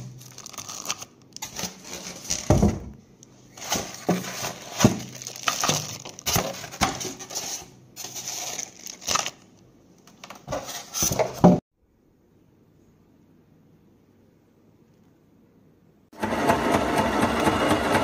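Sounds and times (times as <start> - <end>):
plastic packaging crinkling: 0.0 - 11.4.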